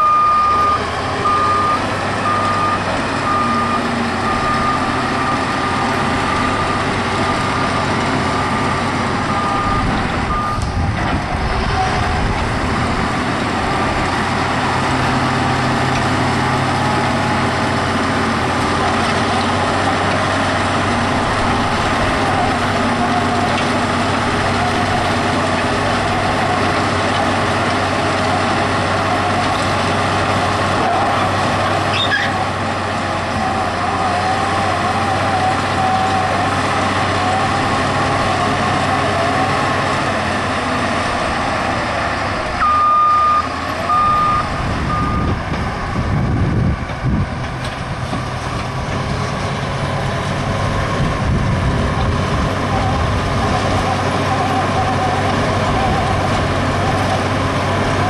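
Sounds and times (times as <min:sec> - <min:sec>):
reversing alarm beeping: 0:00.0 - 0:07.8, 0:09.2 - 0:10.8, 0:42.6 - 0:45.4
diesel engine running: 0:00.0 - 0:58.0.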